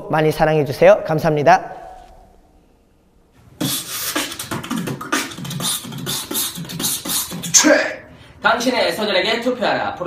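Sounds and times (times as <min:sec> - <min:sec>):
man beatboxing: 0:03.6 - 0:08.1.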